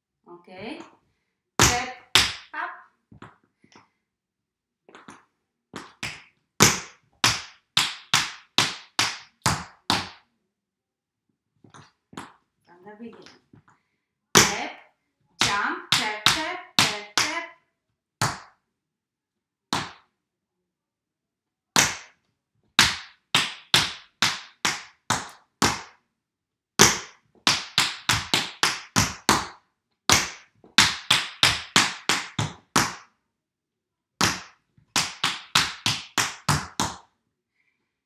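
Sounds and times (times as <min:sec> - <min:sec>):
tap shoes on wooden floor: 0:26.8 - 0:33.0, 0:34.2 - 0:37.1.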